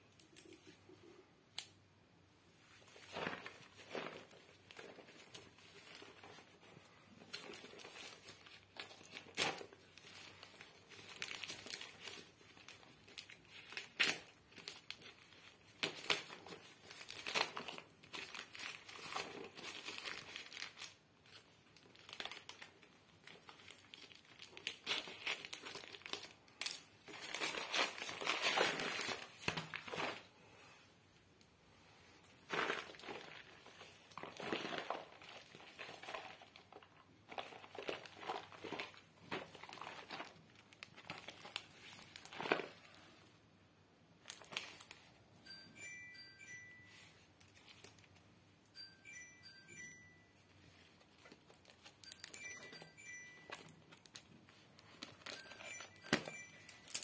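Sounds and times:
plastic and paper wrapping tearing: 3.0s - 30.3s, 32.4s - 43.0s.

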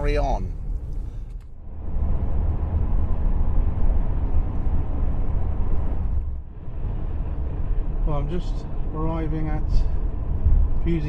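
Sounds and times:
road and wind rumble in car: 0.0s - 11.0s.

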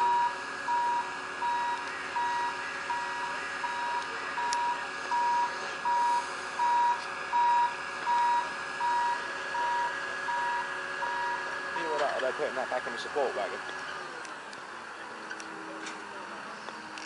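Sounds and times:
crane warning beeps: 0.0s - 11.6s
crane engine hum: 0.0s - 17.0s.

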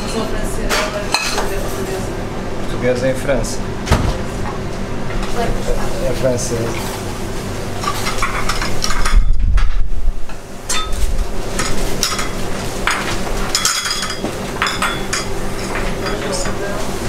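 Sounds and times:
dishes and utensils clattering: 0.0s - 2.0s, 7.8s - 9.3s, 10.7s - 16.8s
steady hum: 0.0s - 17.0s.

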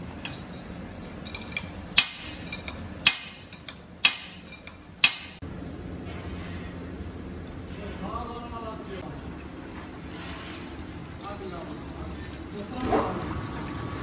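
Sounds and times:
extruder low hum: 0.0s - 14.0s
tool tapping metal: 1.2s - 5.4s.

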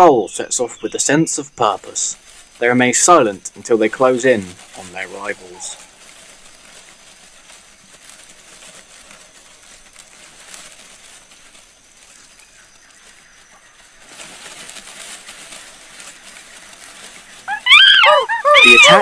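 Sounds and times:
steady high hiss: 0.0s - 17.6s.

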